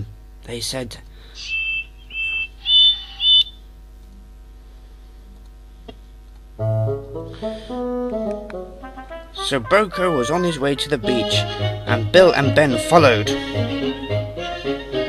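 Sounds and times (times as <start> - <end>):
background music: 6.6 - 15.0
brass tune: 6.6 - 15.0.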